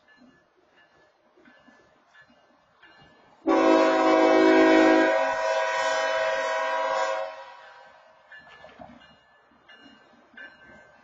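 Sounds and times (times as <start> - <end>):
locomotive air horn blast: 3.5 - 8.0.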